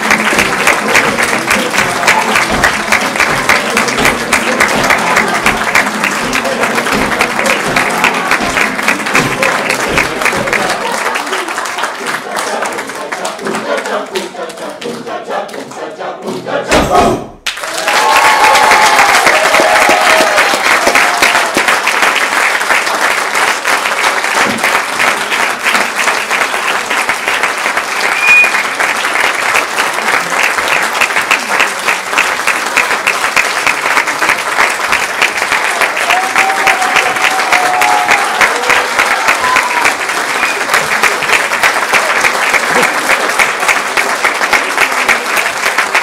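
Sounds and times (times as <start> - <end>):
audience applauding: 0.0 - 15.8, 17.4 - 46.0
whistle: 28.0 - 28.8.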